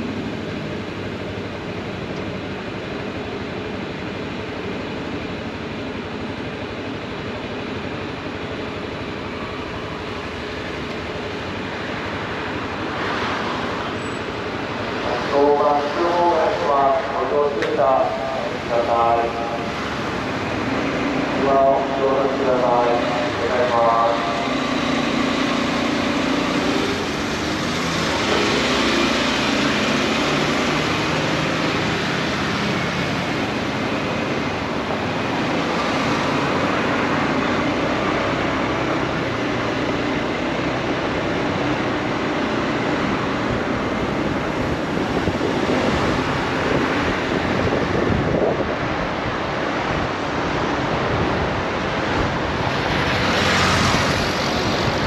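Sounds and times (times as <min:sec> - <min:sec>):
motorcycle engine and tyre roar: 0:00.0 - 0:55.0
wind rushing over microphone: 0:11.6 - 0:55.0.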